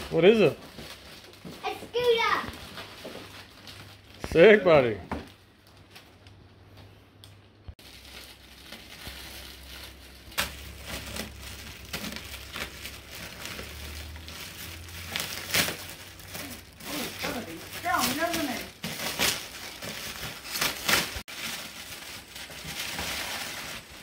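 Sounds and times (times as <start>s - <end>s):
wrapping paper crackling and rustling: 0.0s - 6.5s, 7.7s - 24.0s
paper ripping: 8.0s - 24.0s.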